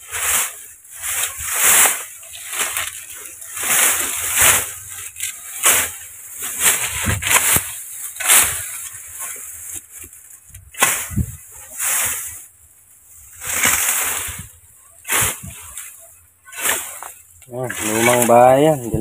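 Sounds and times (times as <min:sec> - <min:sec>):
hoe scraping through dry grass: 0:00.0 - 0:19.0
hoe chopping into dirt: 0:10.7 - 0:11.4.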